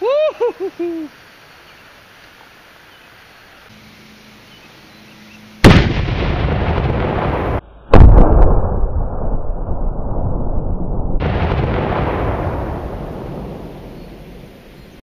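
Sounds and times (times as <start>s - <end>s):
cannon blast: 5.6s - 14.6s.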